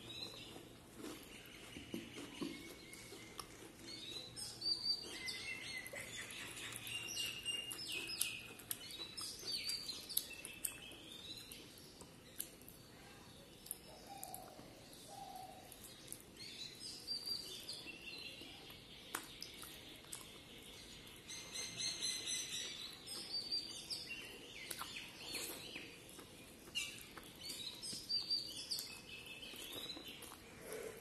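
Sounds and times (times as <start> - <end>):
chewing with lip smacks: 0.1 - 12.8, 18.4 - 20.5, 22.5 - 31.0
fingers squishing food: 0.2 - 12.8, 18.3 - 21.3, 24.6 - 30.5.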